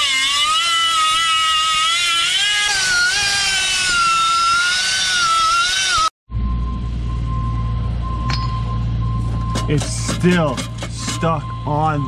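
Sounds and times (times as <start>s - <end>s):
cut-off disc grinding steel: 0.0s - 6.1s, 9.3s - 12.0s.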